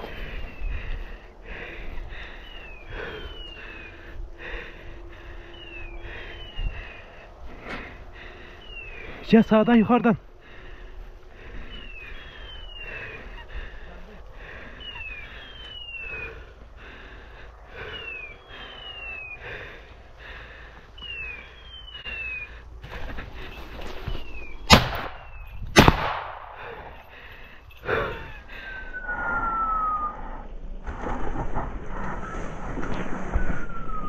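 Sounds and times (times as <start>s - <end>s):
short falling whistle tones: 14.8s - 16.4s, 21.0s - 22.5s, 28.8s - 30.5s, 32.0s - 34.0s
shotgun shots: 24.7s - 26.6s.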